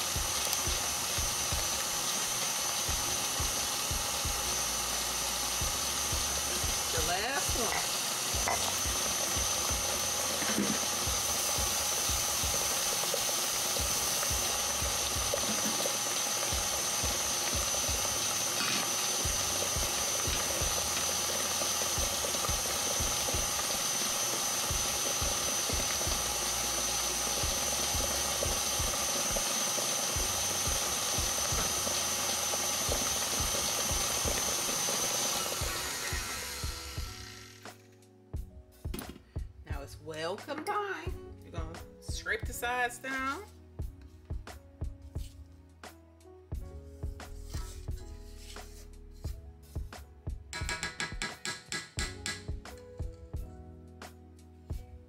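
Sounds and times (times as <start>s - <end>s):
beater churning batter in metal bowl: 0.0s - 37.6s
stand mixer whining: 0.0s - 37.7s.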